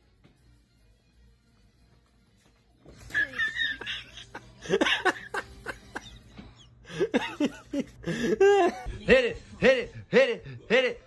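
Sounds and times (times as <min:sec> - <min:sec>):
person laughing: 0:03.1 - 0:09.8.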